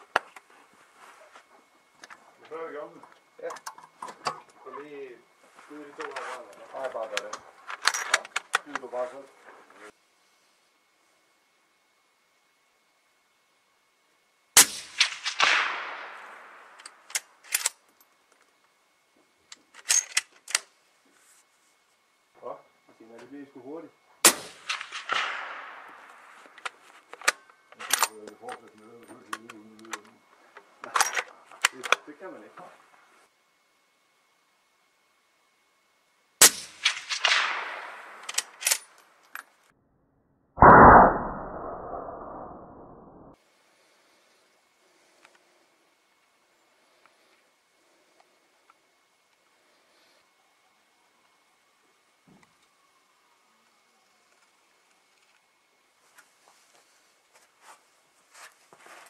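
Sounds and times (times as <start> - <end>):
rifle shot with echo: 14.6 - 17.0, 24.2 - 26.3, 36.4 - 38.6, 40.6 - 42.6
rifle bolt clicks and clacks: 38.2 - 39.5
slowed deep boom: 40.6 - 43.3.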